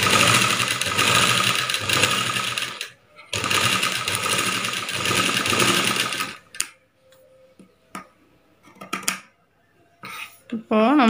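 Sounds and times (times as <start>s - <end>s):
sewing machine stitching: 0.0s - 6.6s.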